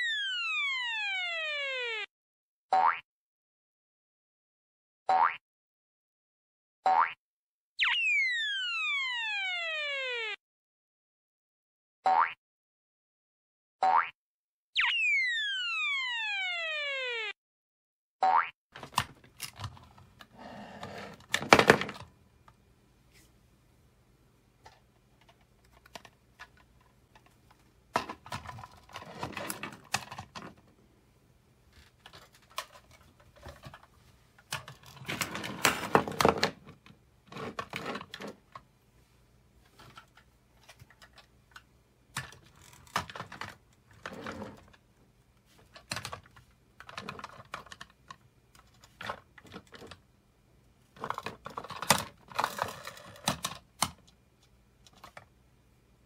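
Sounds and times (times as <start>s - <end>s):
plastic toys clattering on table: 20.8s - 22.1s, 24.6s - 30.6s, 31.8s - 38.6s, 42.2s - 44.8s, 45.6s - 50.0s, 51.0s - 54.1s.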